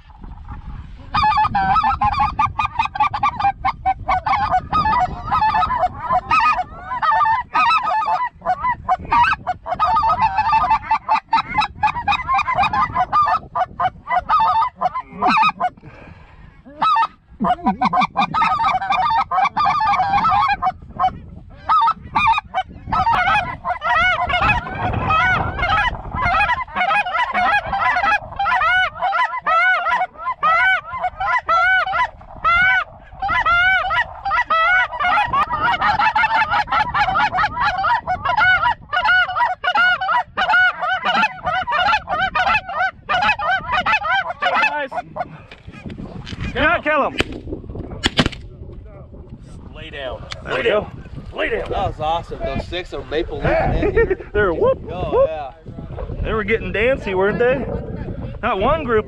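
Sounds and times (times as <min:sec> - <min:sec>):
goose calls clucking and honking: 0:00.0 - 0:15.9, 0:16.6 - 0:47.3.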